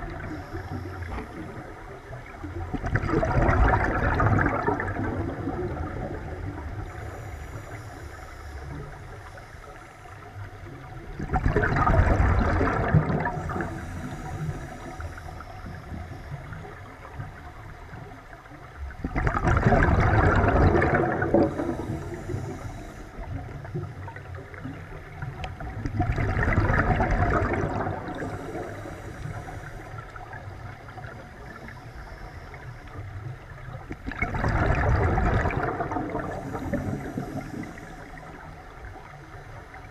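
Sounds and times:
underwater bubbles rushing: 0:00.0 - 0:39.9
watery hiss: 0:00.1 - 0:02.2, 0:06.6 - 0:10.3, 0:12.6 - 0:16.8, 0:19.9 - 0:23.8, 0:26.6 - 0:33.0, 0:35.0 - 0:38.7.

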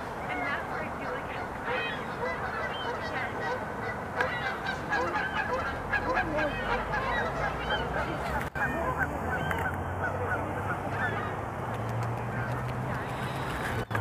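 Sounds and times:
geese honking: 0:00.3 - 0:11.4.

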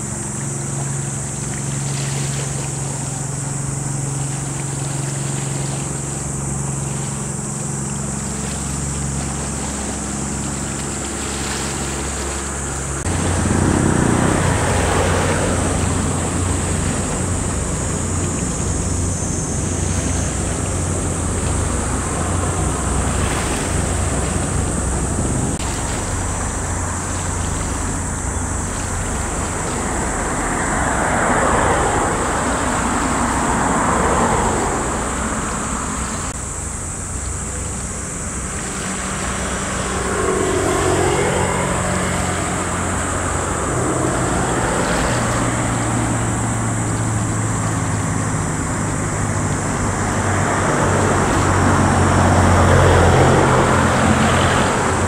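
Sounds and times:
low engine drone: 0:00.0 - 0:55.0
vehicle passing: 0:08.4 - 0:55.0
wind on microphone: 0:09.2 - 0:36.6.

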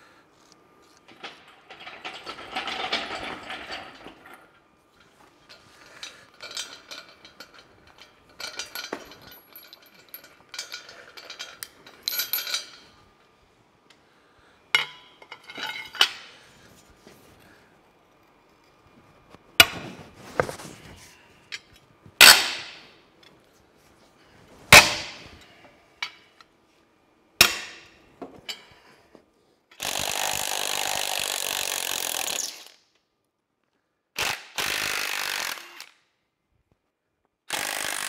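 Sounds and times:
steel chain clinking and rattling: 0:01.1 - 0:13.0.

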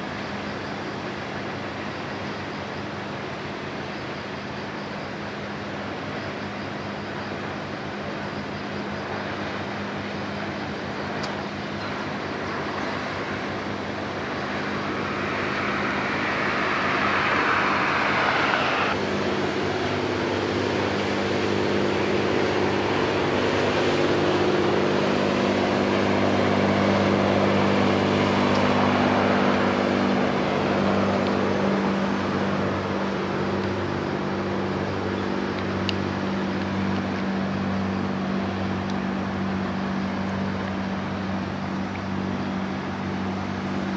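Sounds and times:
ship engine drone: 0:00.0 - 0:43.9
rushing noise: 0:12.2 - 0:34.9.

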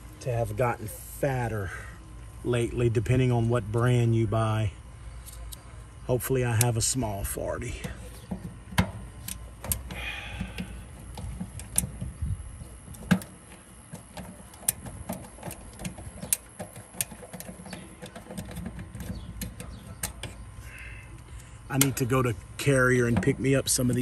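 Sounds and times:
nut driver metallic clicks: 0:14.2 - 0:20.4.

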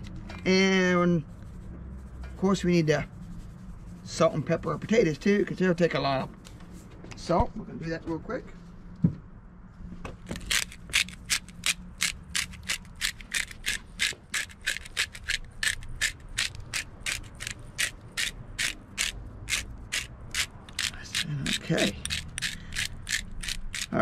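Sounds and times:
spice grinder ratcheting clicks: 0:10.4 - 0:24.0.

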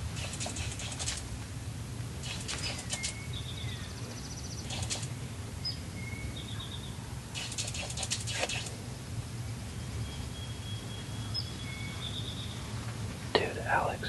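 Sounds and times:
small birds chirping: 0:00.0 - 0:01.2, 0:02.2 - 0:08.8, 0:09.4 - 0:14.0
wings flapping: 0:00.0 - 0:01.3, 0:02.2 - 0:03.2, 0:04.7 - 0:05.2, 0:07.4 - 0:08.8.

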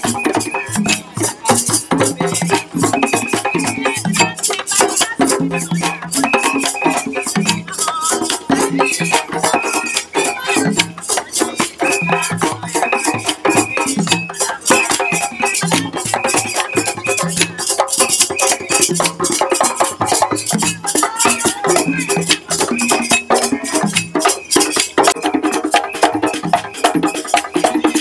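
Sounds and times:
hand drums: 0:00.0 - 0:28.0
wooden clappers clacking: 0:00.1 - 0:28.0
women singing: 0:00.5 - 0:17.7, 0:20.0 - 0:23.9.

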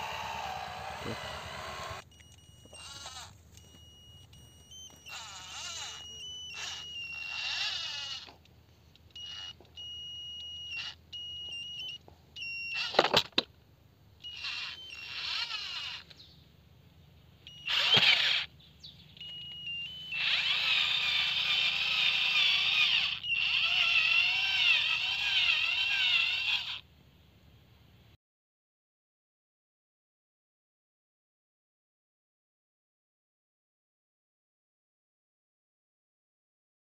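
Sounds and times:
toy gear motor whining: 0:00.0 - 0:13.5, 0:14.2 - 0:16.4, 0:17.4 - 0:26.9.

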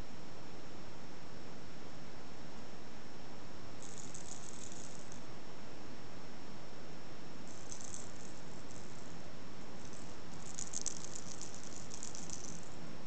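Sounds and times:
high-pitched rattling: 0:03.8 - 0:05.2, 0:07.5 - 0:12.8.

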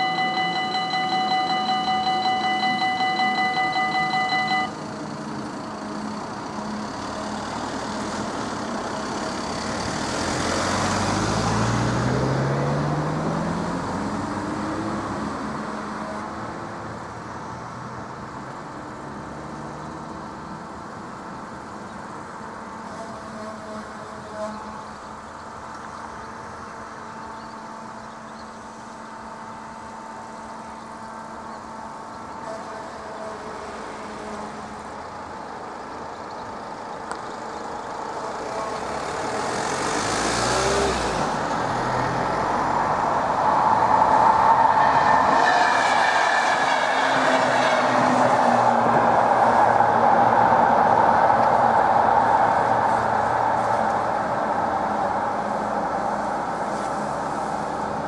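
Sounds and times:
electric train rumbling past: 0:00.0 - 0:13.8.

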